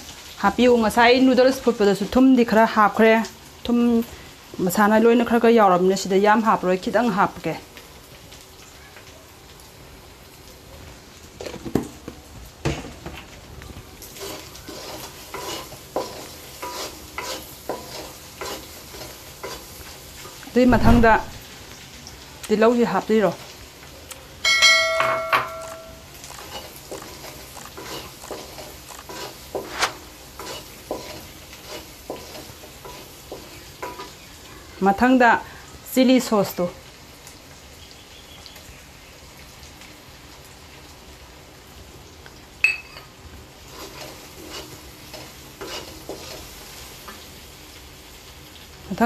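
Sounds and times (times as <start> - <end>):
food sizzling: 0.0 - 49.0
spatula scraping metal wok: 14.0 - 21.2, 25.4 - 34.1, 43.6 - 47.0.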